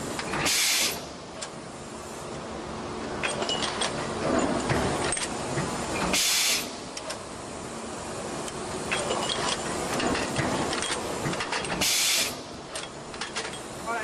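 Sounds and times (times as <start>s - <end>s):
compressed air hiss: 0.4s - 1.2s, 6.1s - 6.8s, 11.7s - 12.5s.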